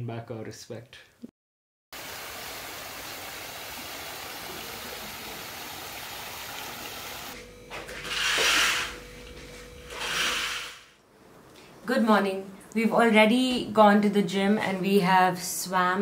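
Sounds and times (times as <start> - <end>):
water cascade rushing: 2.0 - 7.4.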